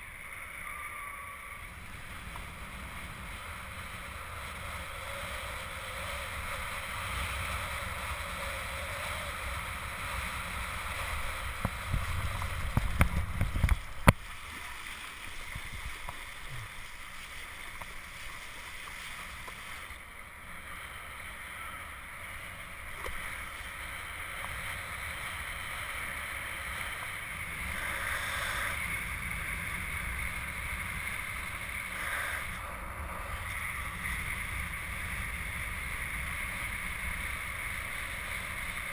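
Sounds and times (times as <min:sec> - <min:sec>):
wind buffeting microphone: 0:01.8 - 0:14.1
water hissing past: 0:27.6 - 0:28.9.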